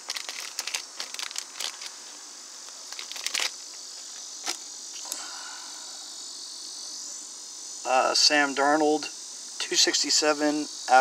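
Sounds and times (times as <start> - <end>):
plastic card sleeves crinkling: 0.0 - 2.0, 2.7 - 3.6
high-pitched hiss: 0.0 - 11.0.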